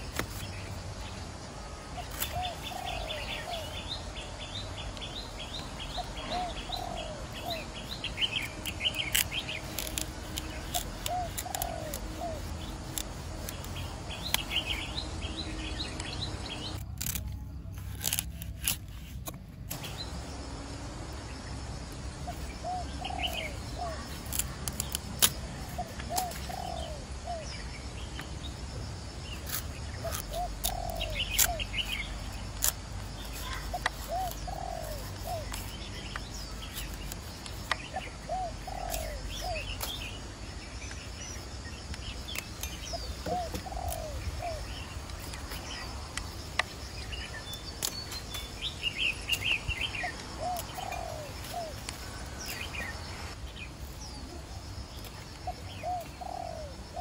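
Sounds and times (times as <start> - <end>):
small birds chirping: 0.0 - 57.0
doves cooing: 6.0 - 7.7, 10.2 - 13.2, 25.6 - 27.4, 30.1 - 31.6, 33.5 - 35.8, 38.0 - 39.7, 43.0 - 44.9, 50.0 - 52.4, 55.4 - 57.0.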